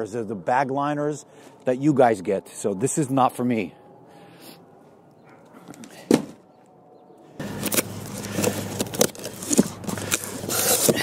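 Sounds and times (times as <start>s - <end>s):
steady low hum: 0.0s - 11.0s
packaging rustling and clicking: 7.4s - 11.0s.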